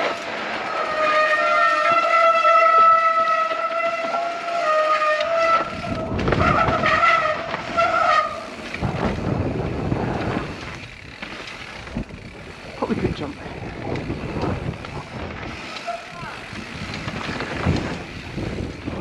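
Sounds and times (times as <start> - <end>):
tyres rumbling over dirt: 0.0 - 19.0
bike disc brakes squealing: 0.8 - 9.1, 14.7 - 18.9.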